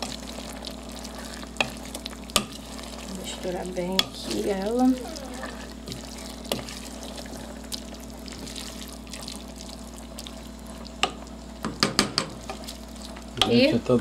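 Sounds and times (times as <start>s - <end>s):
stew simmering hiss: 0.0s - 14.0s
spoon knocking against pot: 11.0s - 12.6s.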